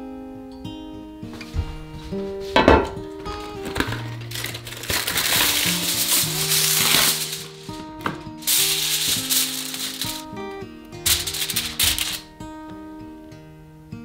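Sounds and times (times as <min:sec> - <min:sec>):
background music: 0:00.4 - 0:14.0
aluminium foil crinkling: 0:02.3 - 0:10.4, 0:11.0 - 0:12.3.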